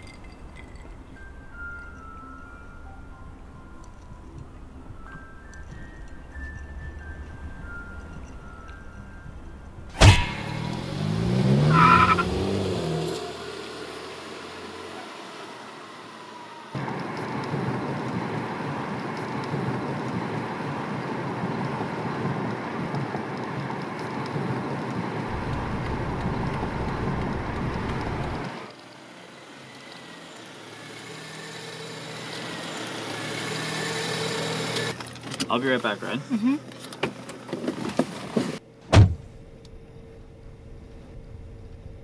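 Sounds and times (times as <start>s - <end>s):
engine and road noise inside car: 0.0s - 42.0s
sharp thump: 9.9s - 11.1s, 38.9s - 39.4s
car engine revving: 9.9s - 22.8s, 24.3s - 35.0s.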